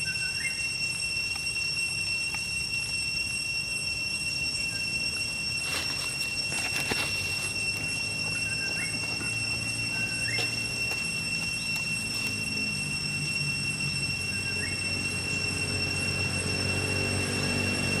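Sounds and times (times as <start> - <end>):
high-pitched whine: 0.0 - 18.0
rising chirp: 0.0 - 18.0
dry leaves rustling: 5.1 - 13.1.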